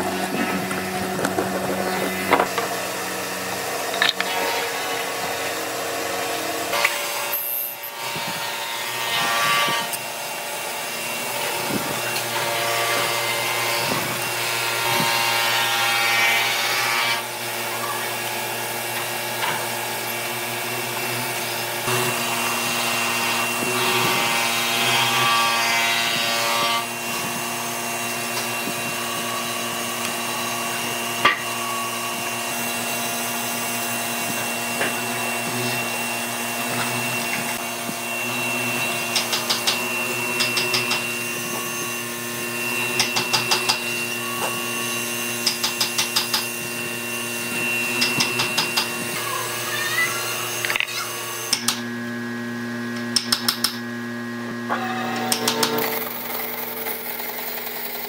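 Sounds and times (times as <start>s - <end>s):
mortiser motor hum: 0.0s - 8.4s, 26.9s - 58.0s.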